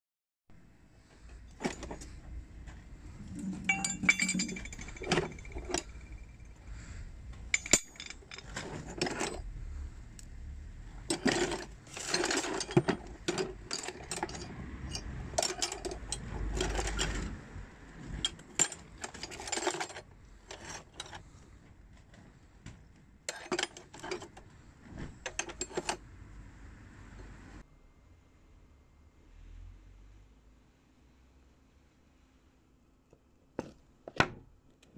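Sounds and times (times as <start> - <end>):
metal tools clinking in a box: 1.5 - 2.3, 3.2 - 6.6, 7.5 - 9.5, 11.0 - 17.4, 18.1 - 21.3, 23.3 - 24.4, 25.2 - 26.0.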